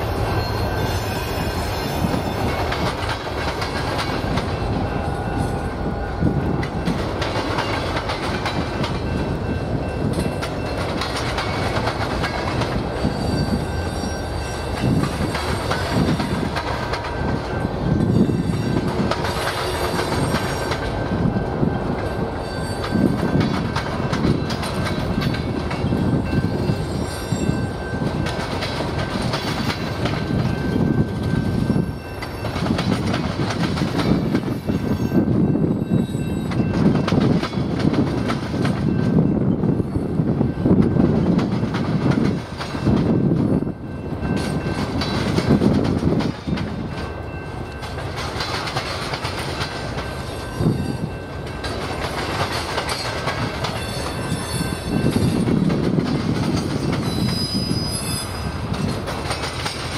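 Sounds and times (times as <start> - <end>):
wheels clacking over rail joints: 0.0 - 35.6, 36.2 - 39.3, 40.8 - 57.6, 58.2 - 59.9
thin wheel squeal: 57.1 - 58.5.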